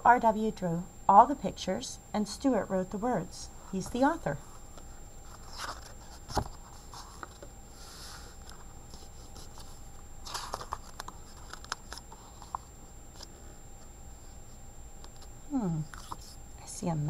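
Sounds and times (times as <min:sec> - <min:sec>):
book pages turning: 0:03.8 - 0:13.4, 0:15.0 - 0:16.4
hand brushing over paper: 0:05.2 - 0:10.6.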